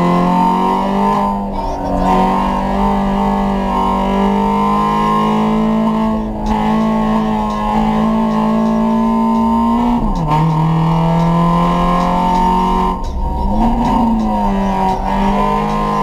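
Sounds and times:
car engine revving hard: 0.0s - 16.0s.

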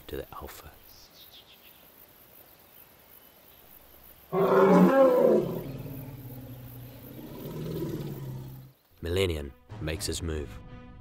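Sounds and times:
elephant roaring: 4.3s - 8.7s.

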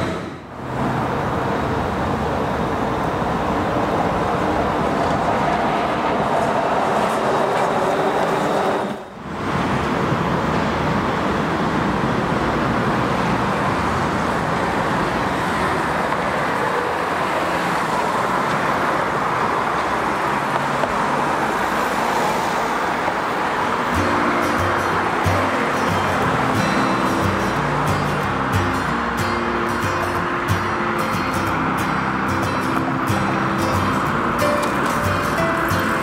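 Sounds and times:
bus passing: 0.0s - 36.0s
road traffic noise: 0.0s - 36.0s.

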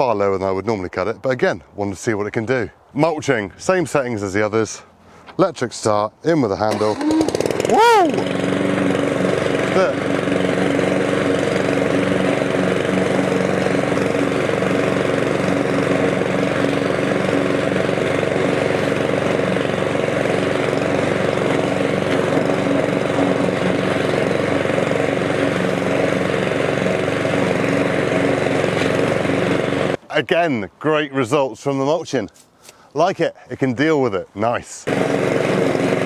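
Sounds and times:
lawn mower cutting grass: 6.6s - 30.0s, 34.8s - 36.0s.

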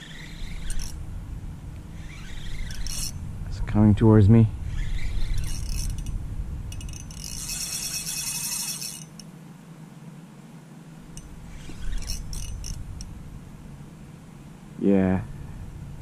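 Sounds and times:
fishing reel ticking: 0.0s - 1.0s, 2.0s - 3.2s, 4.7s - 9.3s, 11.1s - 13.1s
low handling rumble: 0.0s - 7.6s, 10.9s - 16.0s.

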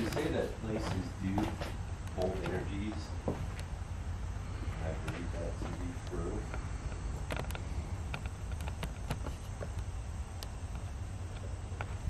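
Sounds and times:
steady low rumble: 0.0s - 12.0s
small clicks and scuffs: 4.8s - 12.0s.

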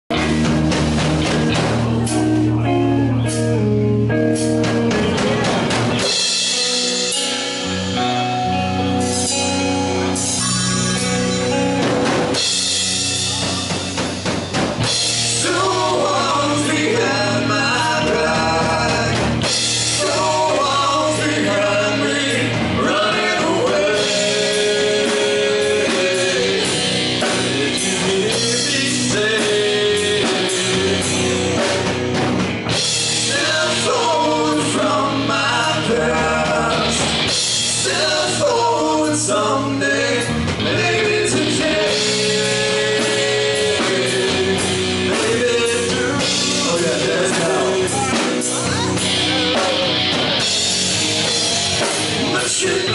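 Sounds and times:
live rock band playing: 0.1s - 52.9s
man singing: 15.0s - 32.0s, 33.0s - 50.2s, 51.2s - 52.9s.

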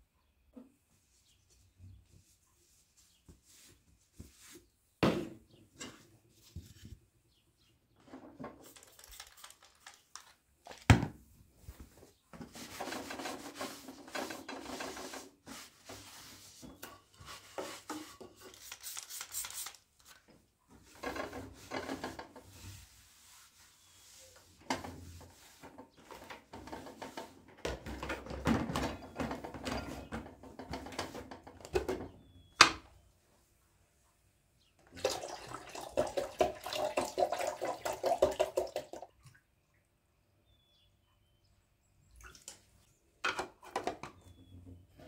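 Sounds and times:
rubbing and scraping strokes: 1.0s - 4.8s, 12.4s - 19.8s, 20.8s - 26.0s.

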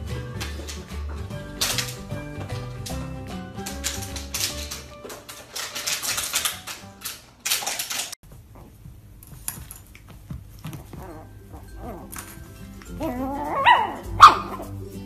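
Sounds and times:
music: 0.0s - 7.3s, 10.7s - 15.0s
rapid clattering clicks: 3.6s - 8.2s.

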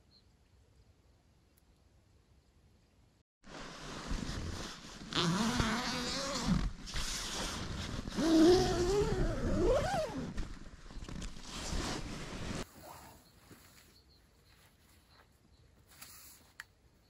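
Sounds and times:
zipper being pulled: 3.8s - 10.4s.

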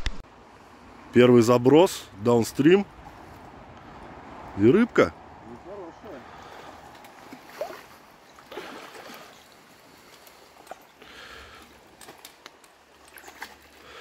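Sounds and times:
shallow stream running: 0.0s - 14.0s
rushes of water noise: 5.3s - 14.0s.

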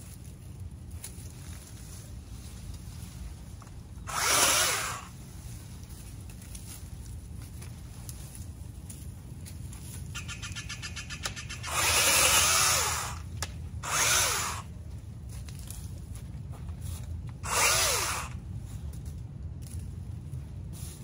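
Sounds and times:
cordless chainsaw motor cutting branches: 4.0s - 5.2s, 11.6s - 14.7s, 17.3s - 18.4s.

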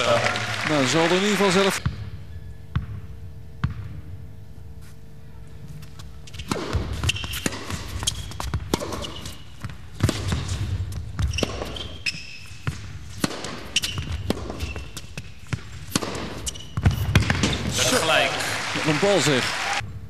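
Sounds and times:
shoes squeaking on court: 4.8s - 17.8s
tennis racket strikes: 6.3s - 17.7s
tennis ball bounces: 6.3s - 17.8s.

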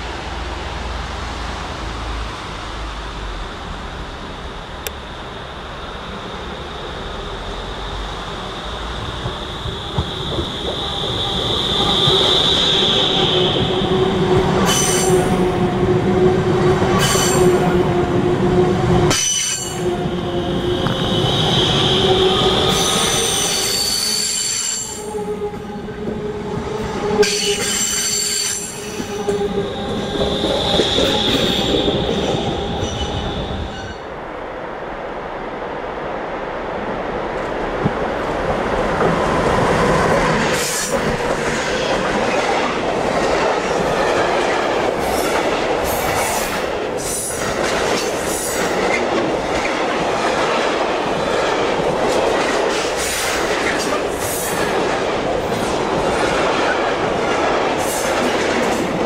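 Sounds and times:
freight train rumble: 0.0s - 59.0s
electric train humming: 0.2s - 34.4s
train wheels squealing: 6.5s - 13.9s, 14.6s - 15.3s, 20.9s - 25.2s, 27.2s - 34.0s.

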